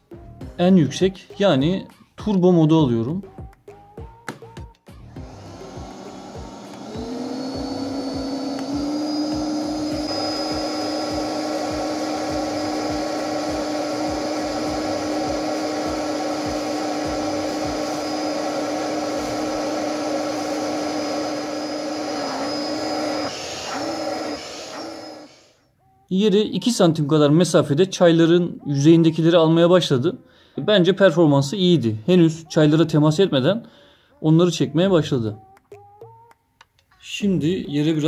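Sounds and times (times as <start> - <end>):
vacuum cleaner motor hum with whine: 5.1 - 25.6.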